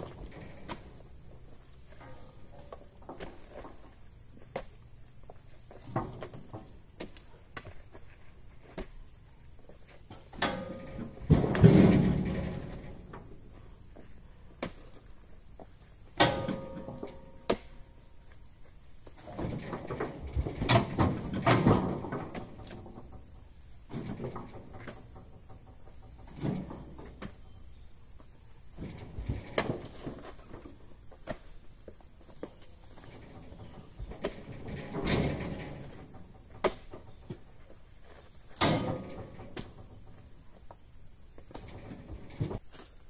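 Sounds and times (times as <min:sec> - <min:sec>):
heavy thuds of fruit bunches landing: 0:10.3 - 0:13.4, 0:28.7 - 0:31.6.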